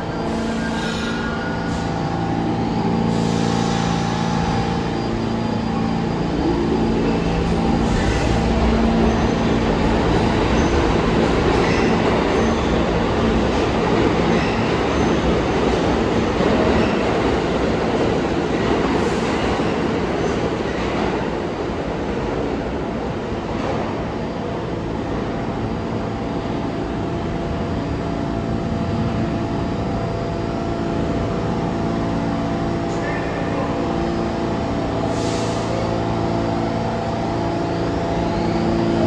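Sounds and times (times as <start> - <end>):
train wheels rumbling on rail: 0.0 - 39.0.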